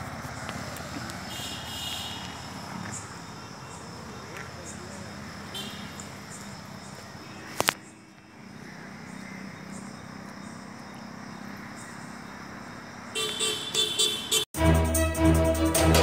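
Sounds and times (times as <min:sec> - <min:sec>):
outdoor night ambience hiss: 0:00.0 - 0:14.2
music: 0:14.6 - 0:16.0.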